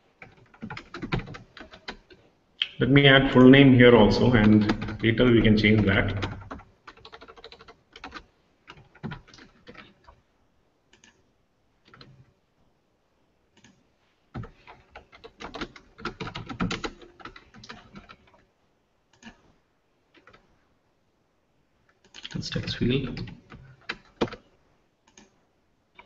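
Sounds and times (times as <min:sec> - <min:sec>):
typing on computer keyboard: 0:00.2 - 0:02.2, 0:04.2 - 0:10.2, 0:10.9 - 0:11.2, 0:11.8 - 0:12.2, 0:13.6 - 0:18.4, 0:19.1 - 0:19.4, 0:20.1 - 0:20.4, 0:22.0 - 0:25.4.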